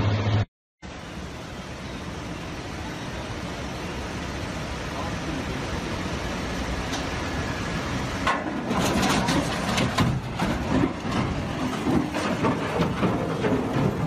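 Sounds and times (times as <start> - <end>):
heavy engine running: 0.0 - 14.0
knocks and clatters: 8.2 - 14.0.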